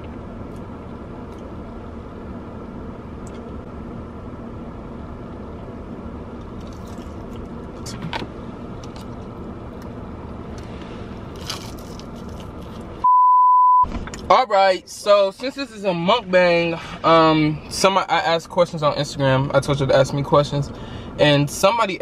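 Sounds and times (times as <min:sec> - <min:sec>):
low car cabin hum: 0:00.0 - 0:13.1, 0:13.8 - 0:22.0
crunchy chewing: 0:06.5 - 0:07.9, 0:10.6 - 0:13.0.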